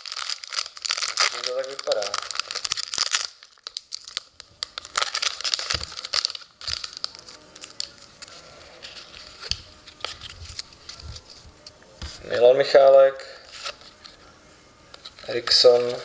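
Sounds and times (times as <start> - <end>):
foil wrapper crinkling and tearing: 0.0 - 11.3
cards being handled: 0.0 - 12.4, 13.5 - 14.2, 14.9 - 16.0.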